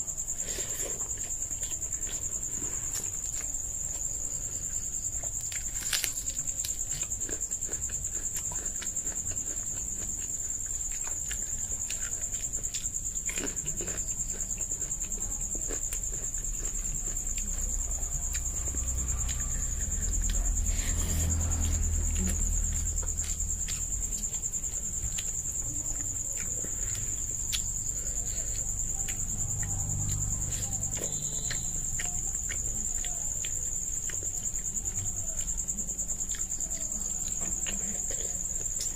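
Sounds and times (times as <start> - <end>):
chewing: 0.0 - 38.9.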